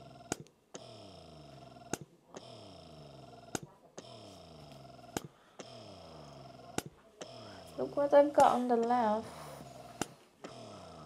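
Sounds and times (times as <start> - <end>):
breast pump click: 8.3 - 9.2.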